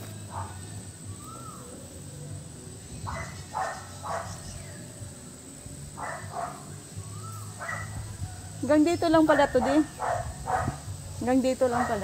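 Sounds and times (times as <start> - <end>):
bird whistle: 1.1 - 1.8, 6.1 - 8.2.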